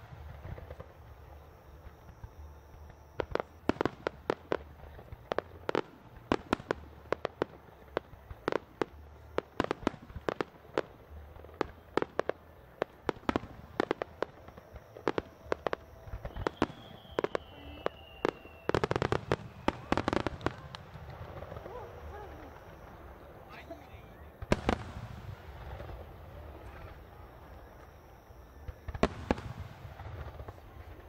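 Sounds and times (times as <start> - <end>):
fireworks bangs: 0.0 - 31.0
faint falling whistle: 14.5 - 23.0.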